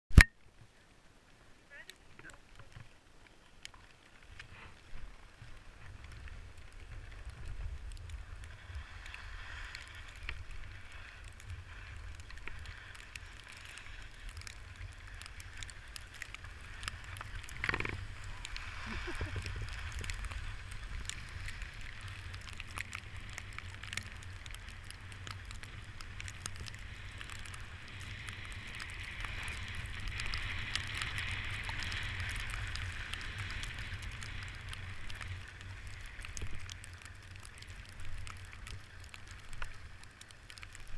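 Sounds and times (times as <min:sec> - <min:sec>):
wind buffeting microphone: 0:16.5 - 0:26.0.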